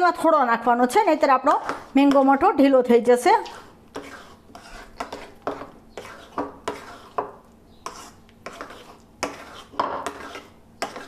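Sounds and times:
spoon scraping ceramic bowl: 3.2 - 11.0.

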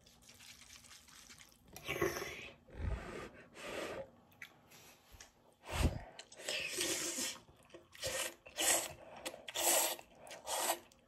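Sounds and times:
person slurping noodles: 6.3 - 11.0.

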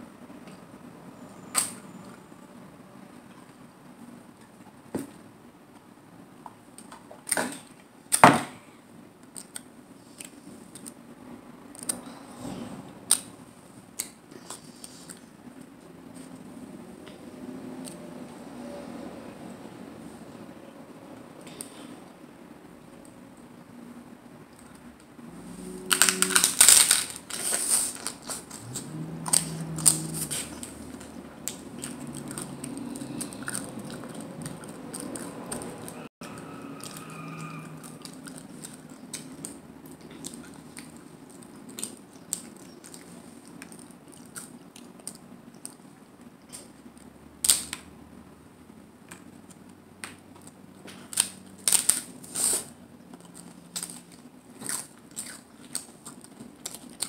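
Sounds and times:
taco shells crunching: 25.6 - 45.8, 49.1 - 57.0
chewing clicks: 28.3 - 45.8, 53.1 - 57.0.

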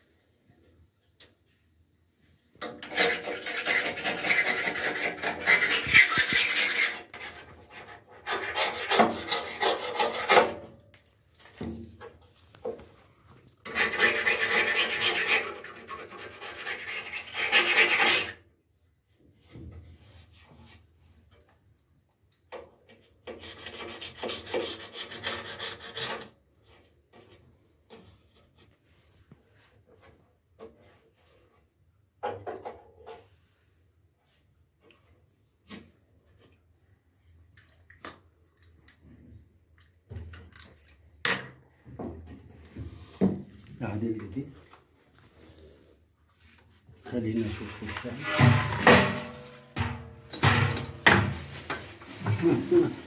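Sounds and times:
metal tool scraping washing machine tub: 2.6 - 10.7, 13.6 - 18.4, 47.1 - 52.0.

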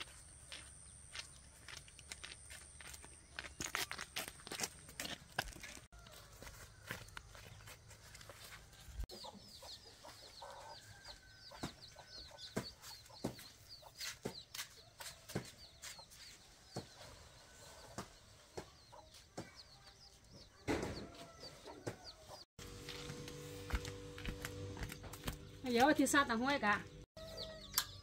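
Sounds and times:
chicks peeping: 9.1 - 22.4.

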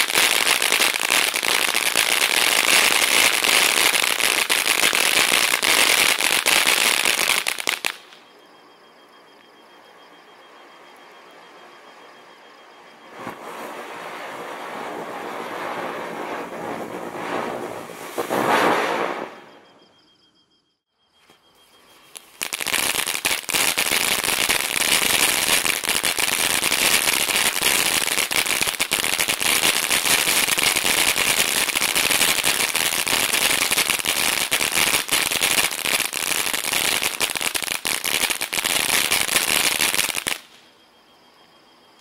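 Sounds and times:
firework fountain crackling: 0.0 - 8.4, 9.3 - 19.7, 21.8 - 40.7.

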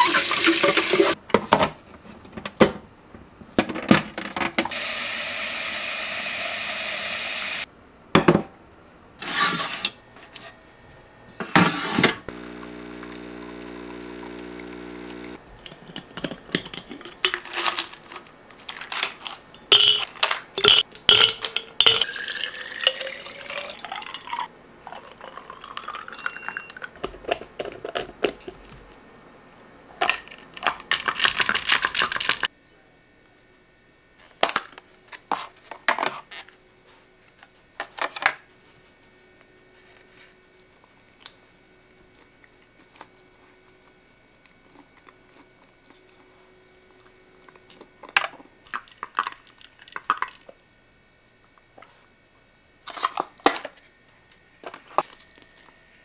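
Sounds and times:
tap water running: 0.0 - 1.2, 4.7 - 7.7
steady electric hum: 0.0 - 26.8
ice clinking: 19.7 - 26.9.

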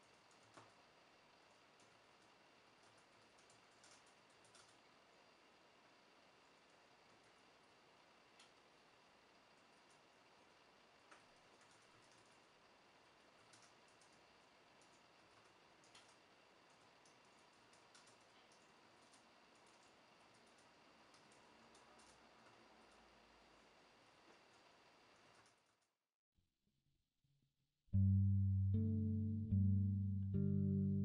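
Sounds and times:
laptop keyboard typing: 0.3 - 0.7, 2.8 - 4.8, 11.5 - 12.4, 13.5 - 14.2, 15.8 - 22.3.

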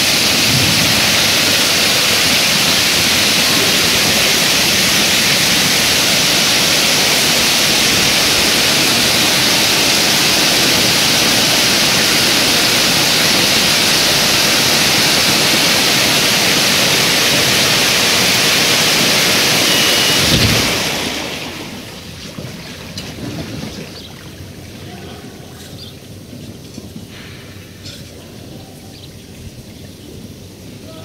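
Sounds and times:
water jets rushing: 0.0 - 31.0
water running across concrete: 0.0 - 31.0.

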